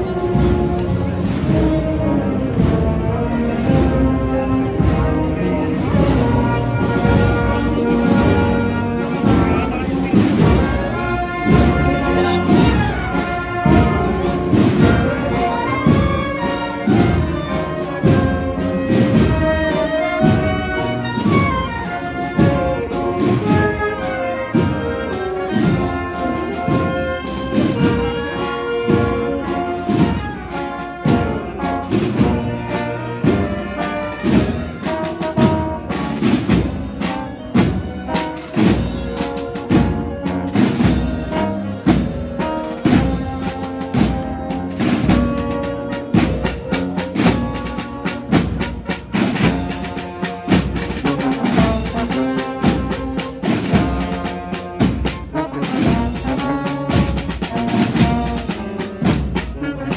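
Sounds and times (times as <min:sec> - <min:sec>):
steady drum beat: 0:00.0 - 0:59.9
trumpets and trombones: 0:00.0 - 0:59.9.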